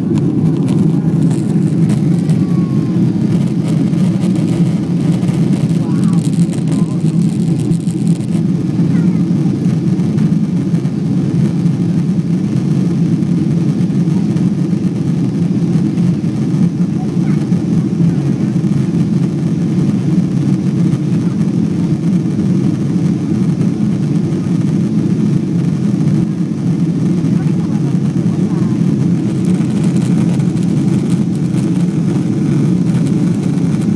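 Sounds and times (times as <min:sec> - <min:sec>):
aircraft cabin engine rumble: 0:00.0 - 0:33.9.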